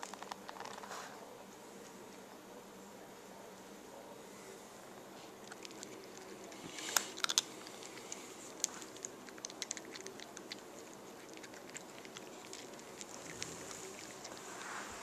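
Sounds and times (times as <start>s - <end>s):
cat crunching dry kibble: 0.0s - 1.2s, 5.4s - 15.0s.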